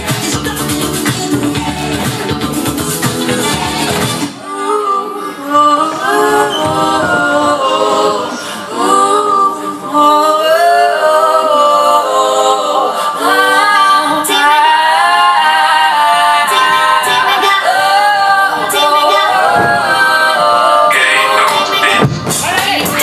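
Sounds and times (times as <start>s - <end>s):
voices singing in harmony: 0.0s - 23.0s.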